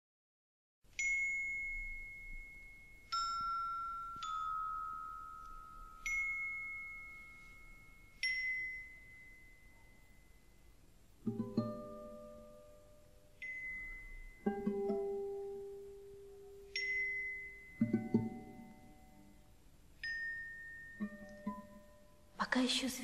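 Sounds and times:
bell-like chime notes ringing: 0:01.0 - 0:10.8, 0:13.4 - 0:14.7, 0:16.6 - 0:22.3.

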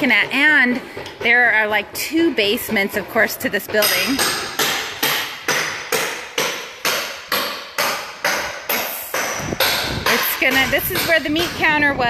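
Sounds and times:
hammer blows: 0:03.7 - 0:11.8.

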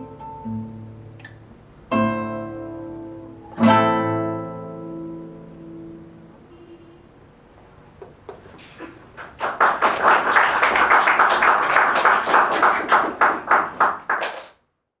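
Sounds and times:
audience applause: 0:08.3 - 0:14.6.

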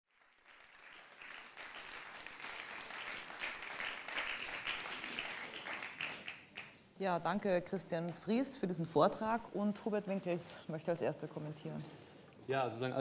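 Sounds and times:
audience applause: 0:00.1 - 0:06.8.

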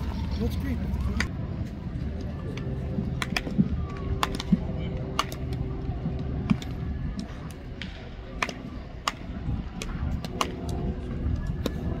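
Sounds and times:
low outdoor rumble: 0:00.0 - 0:12.0
baseballs smacking: 0:03.2 - 0:12.0.

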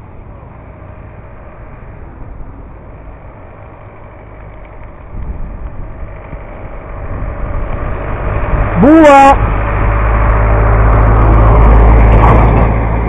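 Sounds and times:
tyres rolling on asphalt: 0:00.0 - 0:13.0
wind on microphone: 0:05.0 - 0:08.8.

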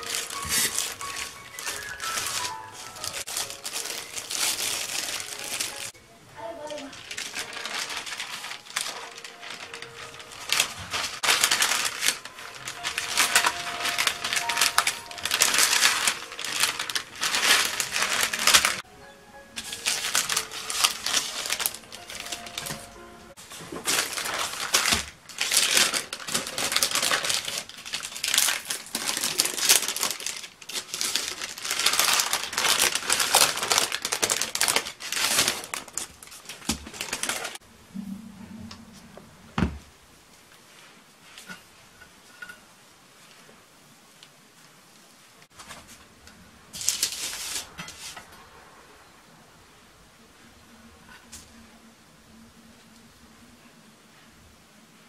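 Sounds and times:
sheets crinkling under rolling pin: 0:00.0 - 0:18.8, 0:19.6 - 0:37.6, 0:46.7 - 0:48.3.

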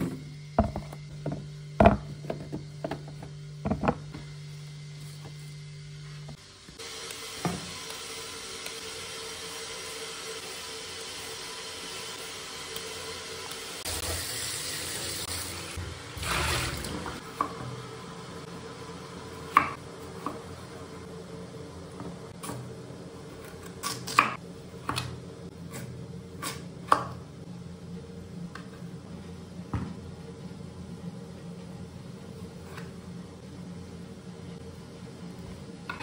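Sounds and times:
water running: 0:06.8 - 0:17.3.

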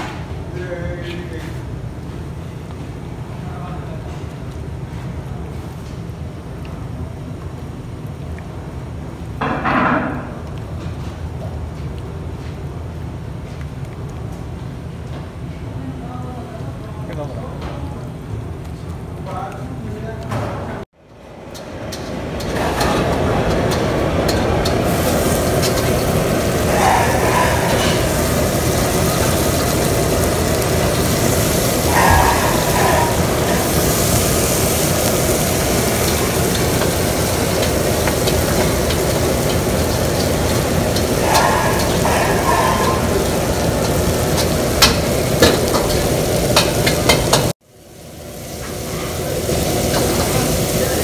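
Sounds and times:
fish frying in hot oil: 0:22.5 - 0:51.0.

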